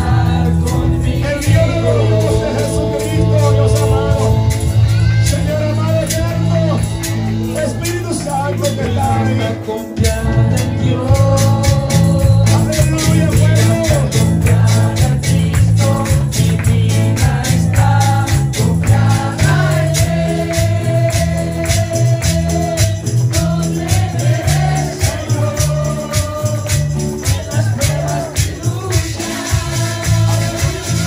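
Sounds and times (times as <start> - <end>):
singers on microphones: 0.0 - 6.8, 7.4 - 31.0
drums: 0.0 - 31.0
keyboard: 0.0 - 31.0.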